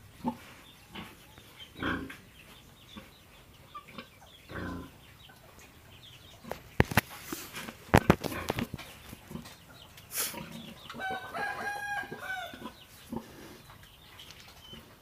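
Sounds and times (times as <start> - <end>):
pig grunting: 1.8 - 2.2, 3.9 - 5.0.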